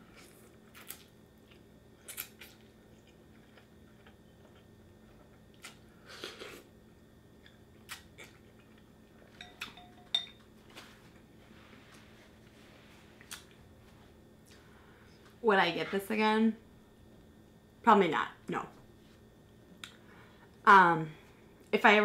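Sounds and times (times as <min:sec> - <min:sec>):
ringing clink: 0:09.4 - 0:10.4.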